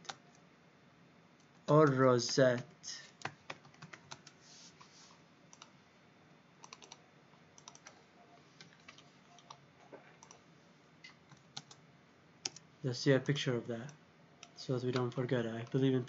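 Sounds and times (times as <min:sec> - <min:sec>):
keyboard and mouse clicks: 0:06.6 - 0:07.0, 0:07.6 - 0:08.0, 0:11.0 - 0:11.8, 0:12.4 - 0:12.6, 0:14.4 - 0:15.8.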